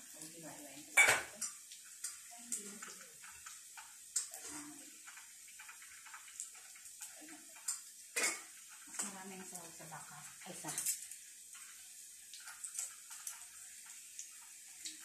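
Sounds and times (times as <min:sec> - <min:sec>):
oil sizzling in frying pan: 0:00.0 - 0:15.0.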